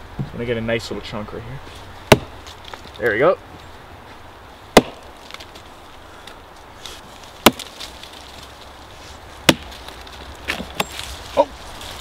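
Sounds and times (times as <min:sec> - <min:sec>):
hatchet chopping: 0:02.1 - 0:02.8, 0:04.7 - 0:05.5, 0:07.4 - 0:07.8, 0:09.4 - 0:09.8.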